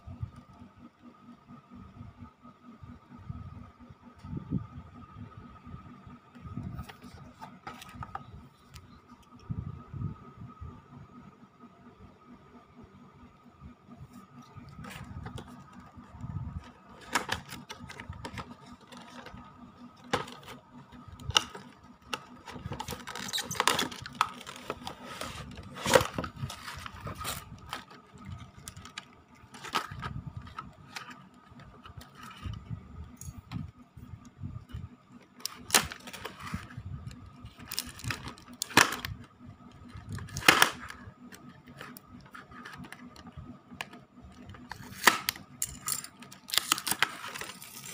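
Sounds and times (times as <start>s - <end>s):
plastic packaging crinkling: 16.6s - 32.5s, 37.4s - 39.2s, 44.6s - 47.9s
cardboard box handling: 21.3s - 32.5s.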